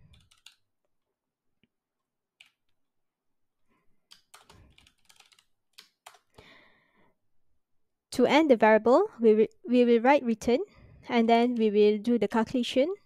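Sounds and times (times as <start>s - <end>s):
typing on a keyboard: 0.0s - 0.6s, 4.1s - 6.4s.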